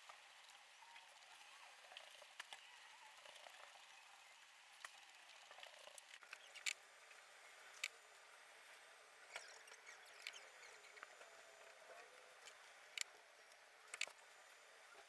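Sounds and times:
small clicks: 4.8s - 6.8s, 7.7s - 8.0s, 9.3s - 14.3s.

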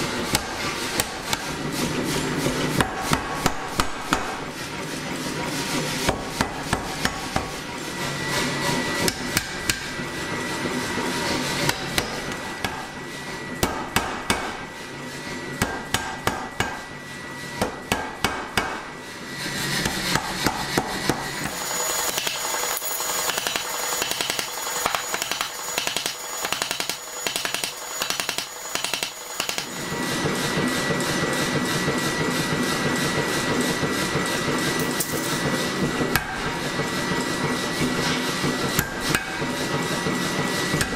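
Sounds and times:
power hammer striking metal: 0.0s - 4.6s, 6.0s - 7.6s, 9.0s - 10.0s, 11.6s - 13.0s, 13.6s - 14.7s, 15.6s - 16.9s, 17.6s - 18.9s, 19.8s - 30.4s, 34.8s - 40.9s.

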